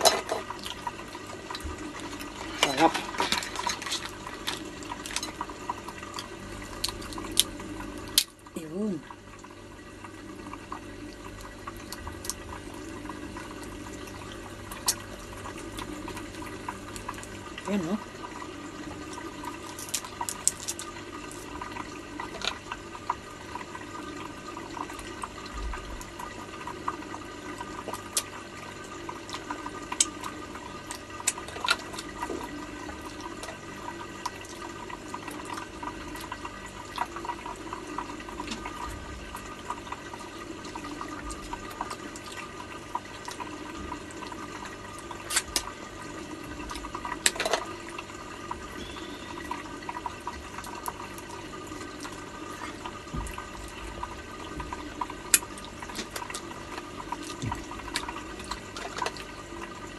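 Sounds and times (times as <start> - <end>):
background hum: 0.0 - 59.9
water trickling from filter: 0.0 - 59.9
crab shell cracking: 6.7 - 8.4, 19.7 - 21.5, 45.3 - 45.7.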